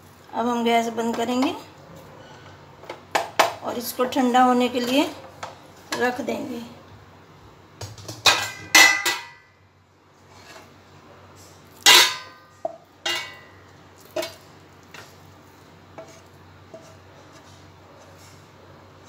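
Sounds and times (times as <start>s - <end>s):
steel plate clattering: 8.0s - 9.4s, 11.9s - 12.5s, 13.1s - 13.6s.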